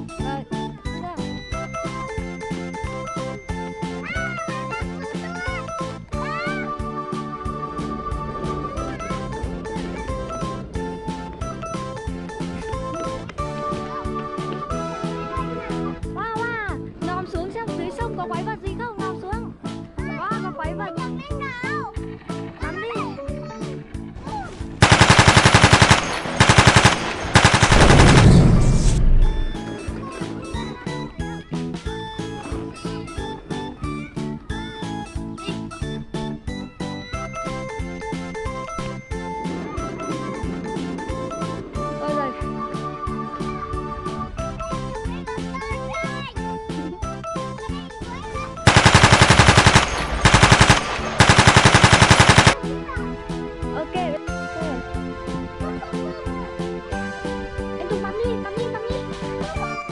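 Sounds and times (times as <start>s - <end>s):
background music: 0.0s - 59.9s
machine-gun fire: 24.8s - 29.0s, 48.7s - 52.6s.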